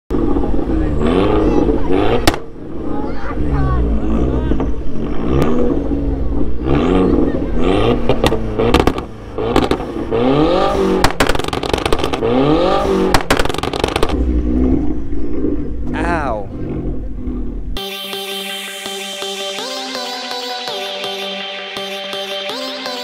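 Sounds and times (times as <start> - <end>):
car engine revving: 0.1 - 18.0
exhaust pops: 0.4 - 2.6, 4.2 - 17.8.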